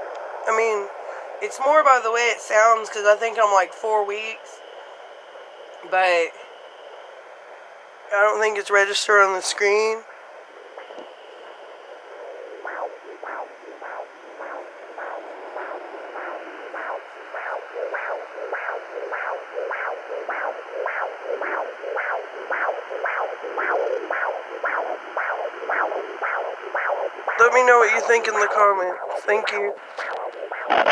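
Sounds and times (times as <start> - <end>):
steady hiss: 0.0 - 30.9
doppler rhythmic pulse: 7.8 - 30.9.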